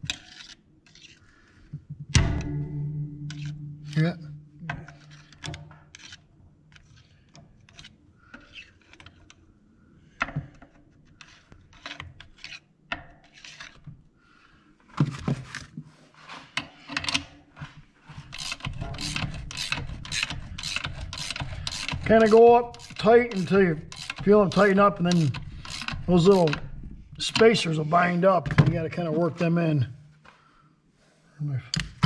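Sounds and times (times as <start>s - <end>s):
metal clicks and scrapes: 2.1s - 9.5s, 11.1s - 13.9s, 16.3s - 27.9s
ratcheting wrench clicking: 18.2s - 26.6s.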